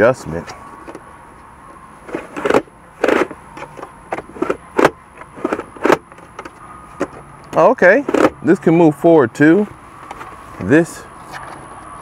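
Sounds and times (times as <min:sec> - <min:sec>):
armrest lid clicking and clunking: 0:02.1 - 0:08.4.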